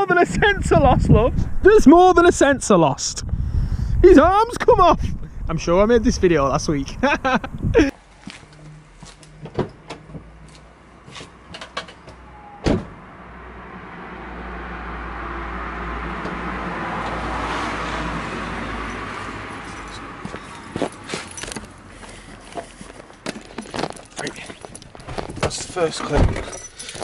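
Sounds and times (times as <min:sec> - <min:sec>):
low rumble: 0:00.3 - 0:02.4, 0:03.1 - 0:04.3, 0:04.9 - 0:07.9
car door thud: 0:12.6 - 0:13.0.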